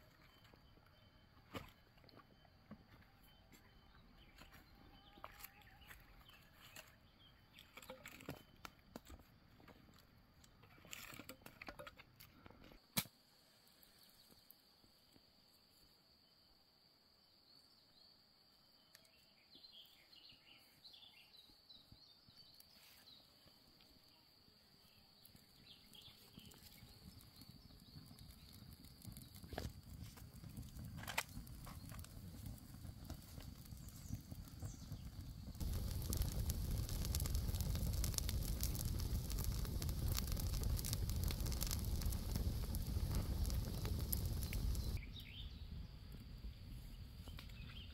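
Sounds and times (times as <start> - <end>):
campfire crackling and rushing: 25.9 - 45.4.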